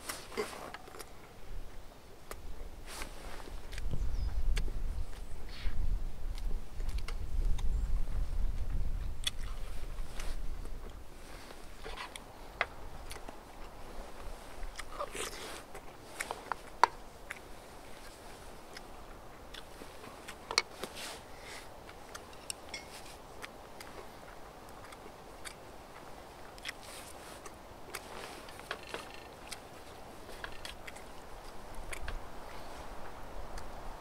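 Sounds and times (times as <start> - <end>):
person chewing and crunching: 9.0 - 32.7.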